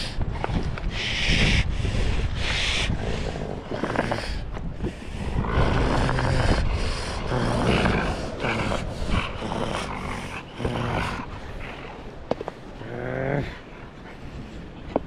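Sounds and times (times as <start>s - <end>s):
dog growling: 2.9s - 4.5s, 5.2s - 12.2s.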